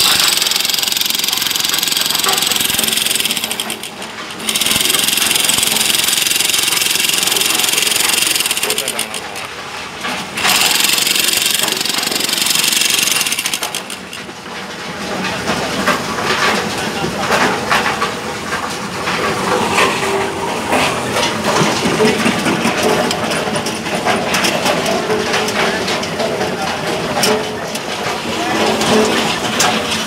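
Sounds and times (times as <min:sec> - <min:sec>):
demolition hammer chiselling rock: 0:00.0 - 0:14.4.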